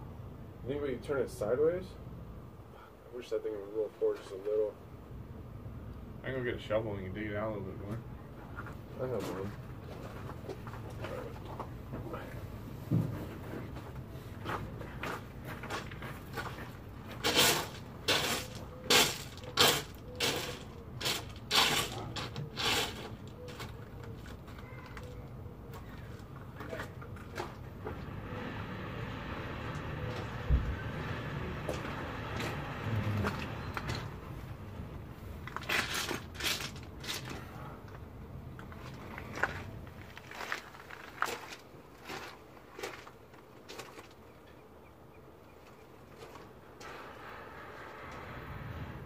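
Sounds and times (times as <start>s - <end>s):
scraping on dirt and grit: 7.9s - 44.5s.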